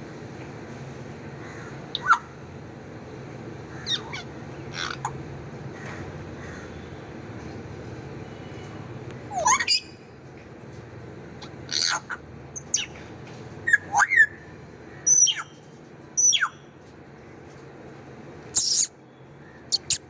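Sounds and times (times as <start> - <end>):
parrot whistles and squawks: 1.9 - 2.3, 9.3 - 9.9, 15.1 - 15.6, 18.6 - 18.9, 19.7 - 20.0.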